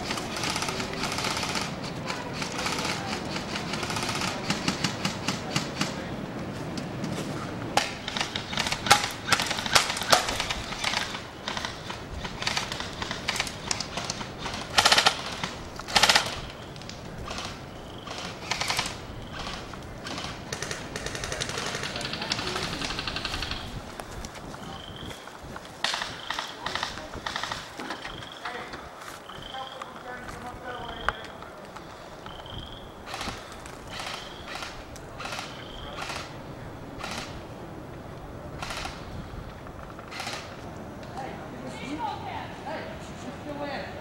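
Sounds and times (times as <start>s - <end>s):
airsoft rifles firing: 0.0s - 6.1s, 7.8s - 23.7s, 25.8s - 28.4s, 33.0s - 36.4s, 37.0s - 37.4s, 40.1s - 40.6s.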